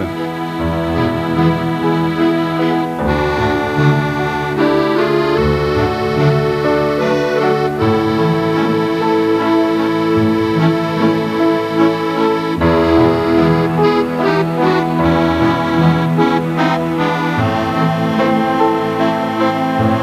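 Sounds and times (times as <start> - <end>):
instrumental music of held chords: 0.0 - 20.0.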